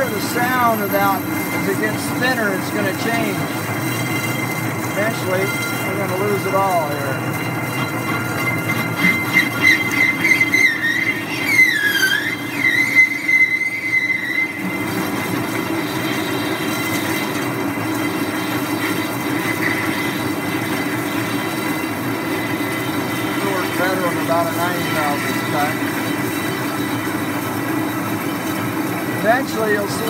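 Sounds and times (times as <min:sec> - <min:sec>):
high wavering whine: 0:00.0 - 0:30.0
metal lathe cutting with low hum: 0:00.0 - 0:30.0.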